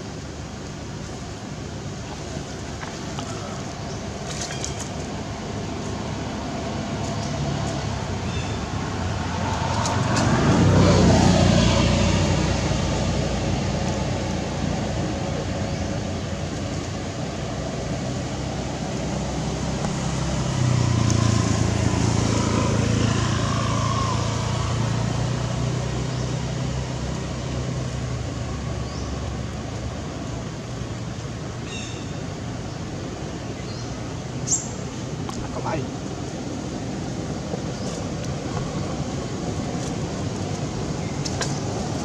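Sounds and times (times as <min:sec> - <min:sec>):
low engine hum: 0:00.0 - 0:42.0
vehicle passing by: 0:05.2 - 0:31.6.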